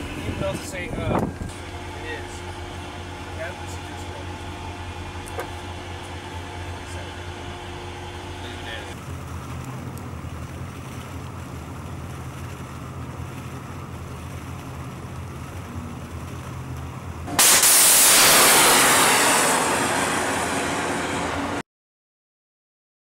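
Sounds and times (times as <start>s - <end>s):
ship engines humming: 0.0s - 21.6s
loud rushing hiss: 17.3s - 21.6s.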